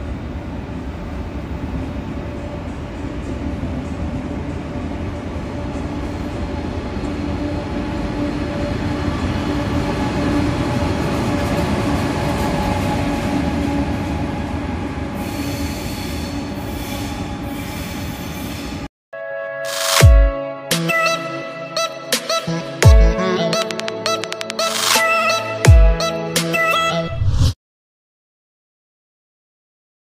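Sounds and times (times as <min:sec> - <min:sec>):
train rumbling by: 0:00.0 - 0:18.9
train wheel squeal: 0:07.1 - 0:18.9.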